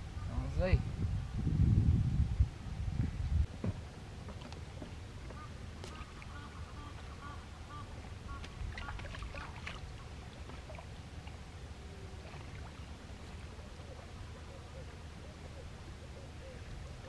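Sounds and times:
water sloshing and splashing: 3.7 - 14.5
bird calling repeated notes: 5.3 - 9.0.

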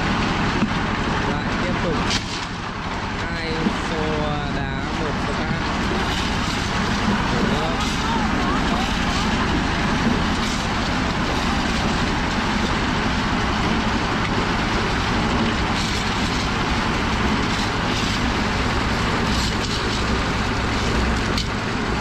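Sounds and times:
concrete mixer engine running: 0.0 - 22.0
shovel scrapes and knocks: 15.7 - 16.5, 19.2 - 20.1.

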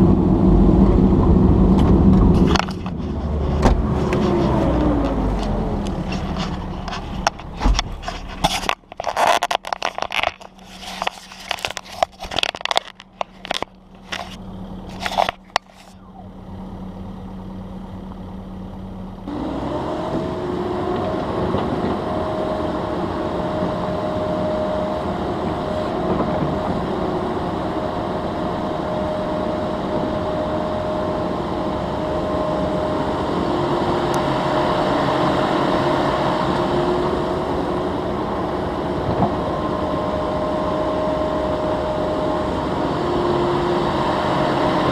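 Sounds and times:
excavator engine drone: 0.0 - 44.9
knocking and rustling near microphone: 1.8 - 13.6.

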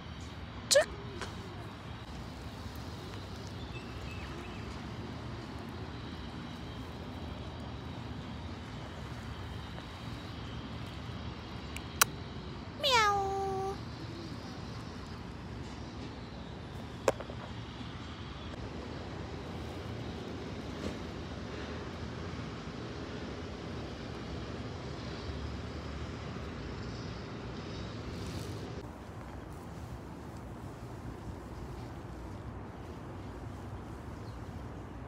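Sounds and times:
cat meowing: 12.8 - 13.8.

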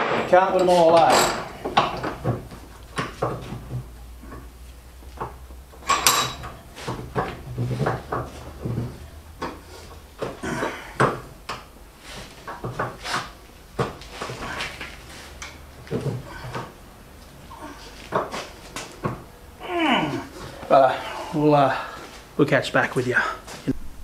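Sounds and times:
hand tools clinking on metal: 0.0 - 2.2, 5.8 - 6.6.

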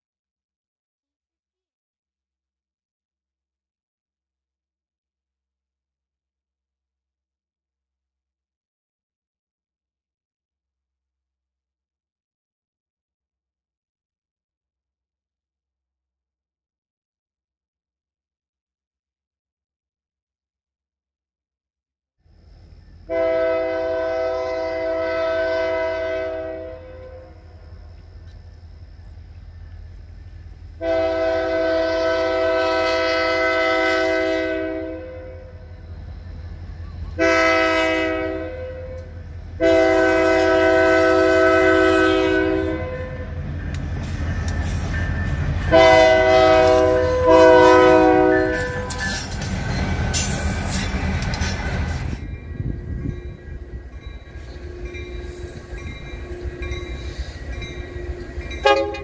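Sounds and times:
locomotive air horn blasts: 23.1 - 27.6, 30.8 - 35.7, 37.1 - 43.4, 45.7 - 49.3, 54.4 - 59.0
faint distant horn: 45.7 - 49.1, 54.5 - 59.0
train wheels clattering: 48.5 - 59.0.

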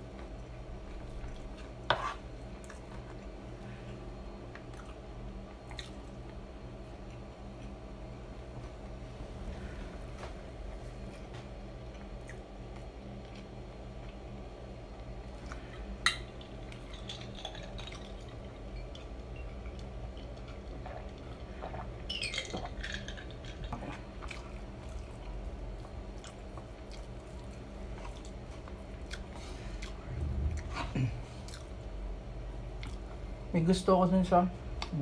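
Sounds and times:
wooden spoon scraping wooden plate: 1.9 - 2.2
chewing: 4.4 - 6.4, 11.0 - 14.4, 15.0 - 31.9, 32.7 - 33.2.

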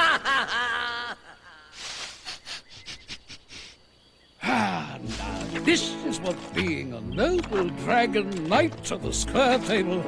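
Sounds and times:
breathy vocal sounds: 4.4 - 5.0.

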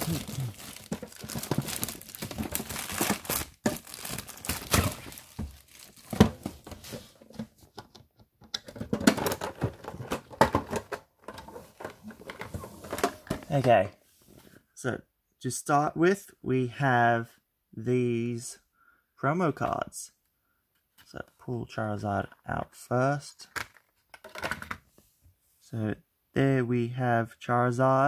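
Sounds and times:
plastic wrap crinkling and tearing: 0.0 - 6.6.

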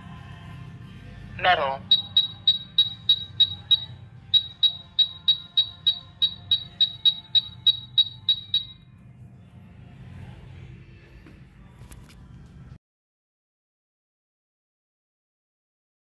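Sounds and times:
wall scanner beeping: 1.4 - 8.9.

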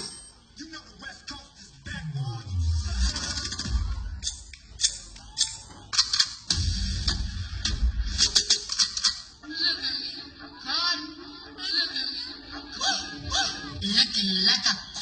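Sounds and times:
dance music over loudspeakers: 6.5 - 15.0.

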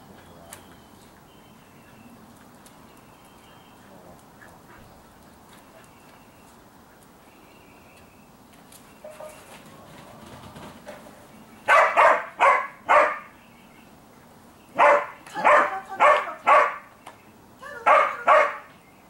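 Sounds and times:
dog barking: 11.7 - 13.3, 14.8 - 16.9, 17.8 - 18.7.

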